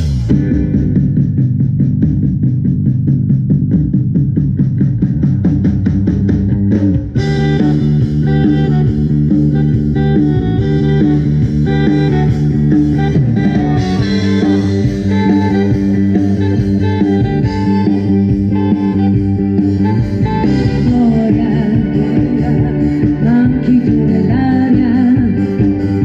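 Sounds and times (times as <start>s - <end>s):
live pop band playing: 0.0s - 2.7s, 5.1s - 26.0s
bass: 0.0s - 26.0s
drum kit: 0.0s - 26.0s
guitar notes: 0.0s - 26.0s
sustained keyboard notes: 7.2s - 26.0s.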